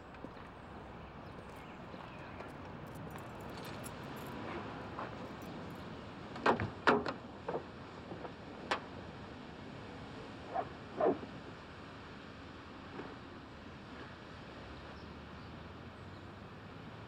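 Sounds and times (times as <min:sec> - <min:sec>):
street background: 0:00.0 - 0:09.0.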